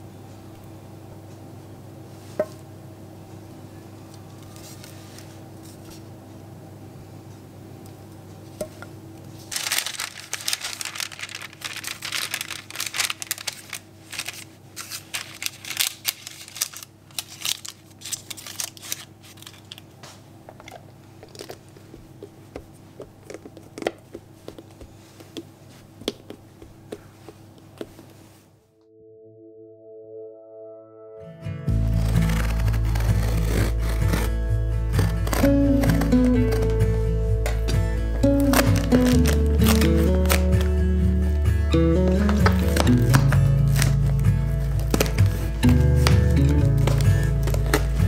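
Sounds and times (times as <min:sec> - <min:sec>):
baking paper crinkling: 0:09.3 - 0:25.2, 0:31.7 - 0:40.8, 0:42.0 - 0:48.0.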